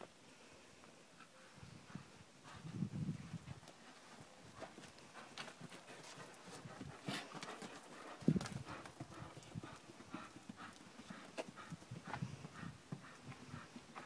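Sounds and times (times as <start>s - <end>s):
horse hoofbeats on sand: 1.9s - 14.0s.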